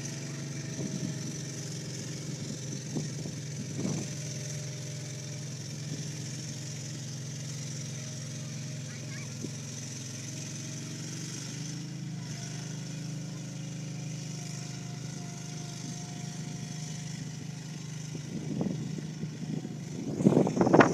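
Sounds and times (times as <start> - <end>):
boat engine running: 0.0 - 20.9
wind buffeting microphone: 0.7 - 1.3, 2.4 - 4.2, 18.1 - 20.9.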